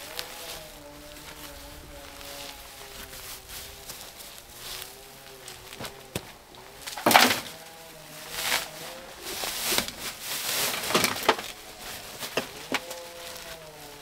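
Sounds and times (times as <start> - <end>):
sack rustling: 0.0 - 14.0
knocks and thuds in wheelbarrow: 5.8 - 7.6, 9.4 - 13.0.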